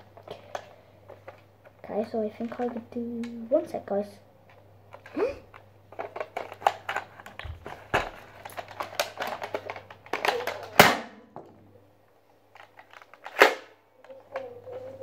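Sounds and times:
loud plastic clacks: 4.5 - 11.6, 12.5 - 14.5.

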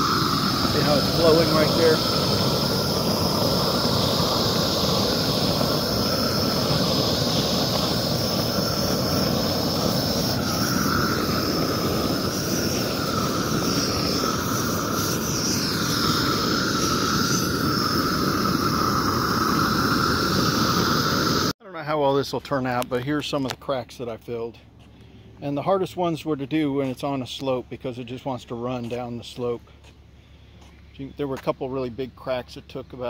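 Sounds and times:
propane torch hissing: 0.0 - 21.6.

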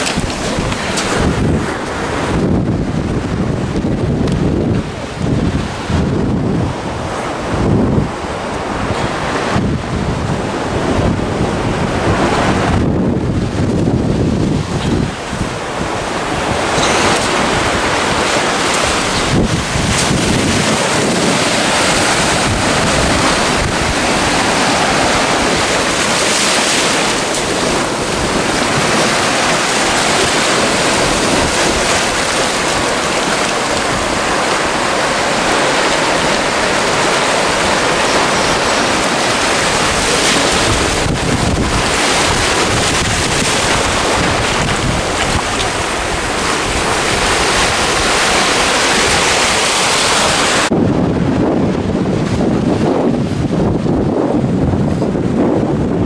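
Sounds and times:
surf breaking on rocks: 0.0 - 53.7
wind buffeting microphone: 0.0 - 56.0.

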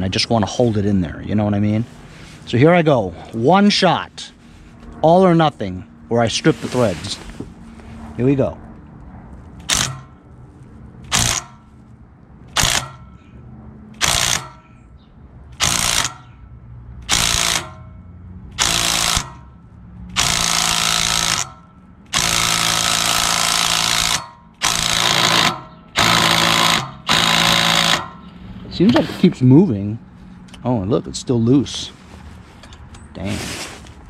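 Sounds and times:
impact wrench hammering: 9.6 - 10.2, 11.1 - 11.7, 12.5 - 13.2, 14.0 - 14.8, 15.6 - 16.4, 17.0 - 18.0, 18.6 - 19.5, 20.1 - 28.3.

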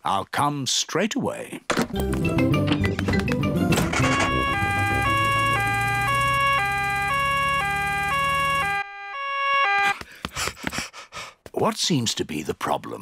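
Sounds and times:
cartoon two-tone siren: 3.7 - 10.0.

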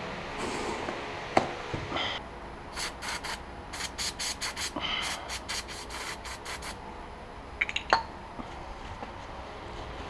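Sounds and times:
aerosol can spraying bursts: 2.8 - 6.8.

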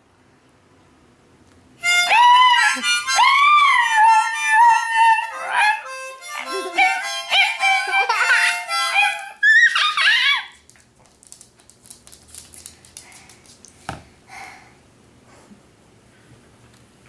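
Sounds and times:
dog howling: 2.0 - 10.6.

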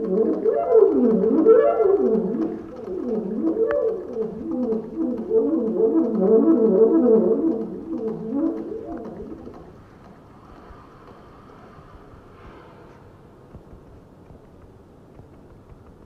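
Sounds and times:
saxophone playing fast arpeggios: 0.0 - 9.7.

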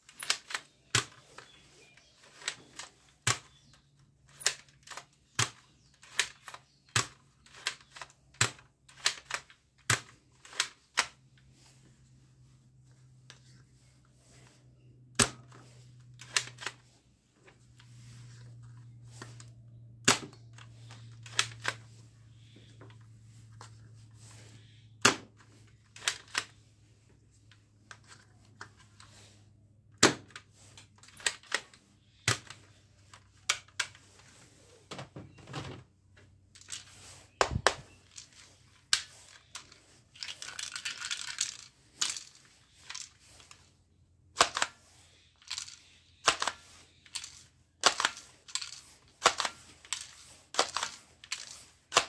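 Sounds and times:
toy blaster plastic clicks: 26.0 - 26.6, 44.4 - 44.8, 45.4 - 52.0
plastic rattling: 30.2 - 43.7, 45.4 - 52.0.

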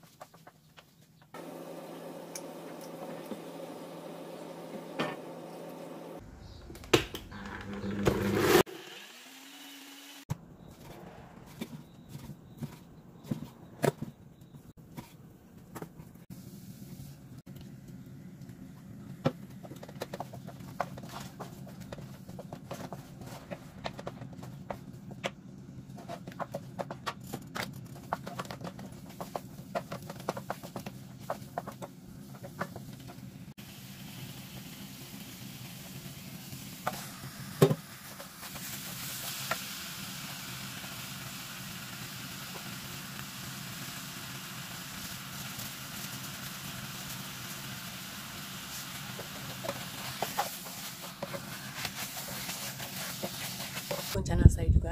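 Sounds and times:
meat sizzling: 33.6 - 54.2
wooden spoon scraping a pan: 48.7 - 54.2.

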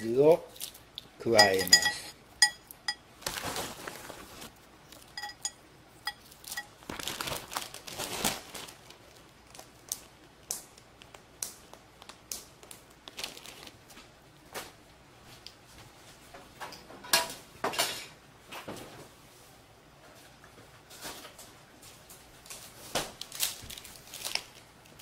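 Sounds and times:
light clinks against a bowl: 1.3 - 3.0, 5.1 - 6.7
plastic bag crinkling: 3.2 - 5.1, 6.2 - 14.0, 23.2 - 25.0.

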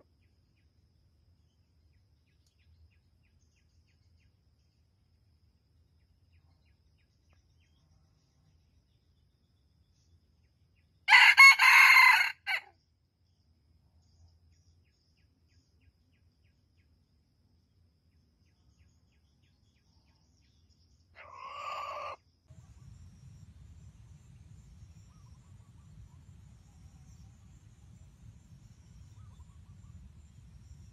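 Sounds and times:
rooster crowing: 11.1 - 12.7, 21.2 - 22.2
faint low rumble: 22.5 - 30.9.

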